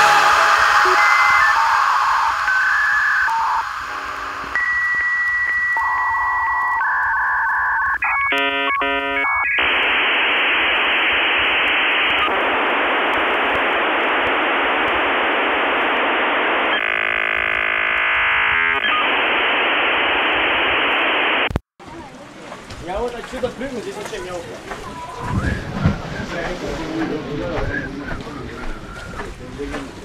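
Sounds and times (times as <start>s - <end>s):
dial-up modem handshake: 0.9s - 3.9s, 4.5s - 21.6s.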